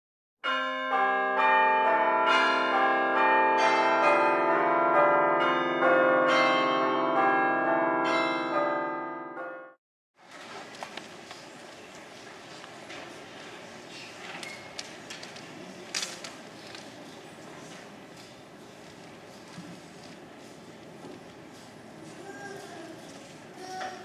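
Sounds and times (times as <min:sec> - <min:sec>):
church bells ringing: 0:00.4 - 0:09.8.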